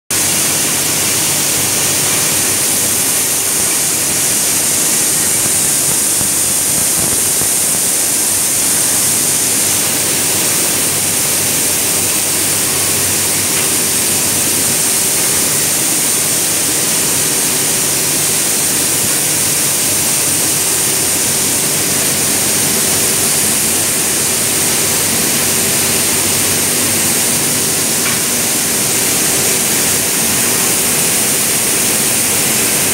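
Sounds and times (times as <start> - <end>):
loud air hiss: 0.2 - 32.8.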